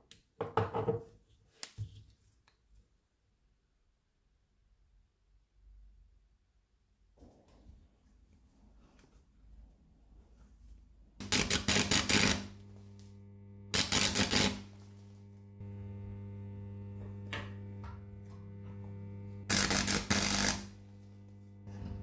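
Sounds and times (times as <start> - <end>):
steady electrical hum: 10.8 - 22.0
welder arc crackling: 11.2 - 22.0.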